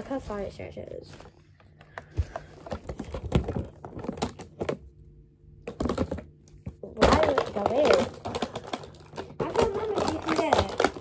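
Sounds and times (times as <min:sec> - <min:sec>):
plastic boxes clicking and knocking: 0:01.7 - 0:04.9, 0:05.6 - 0:11.0.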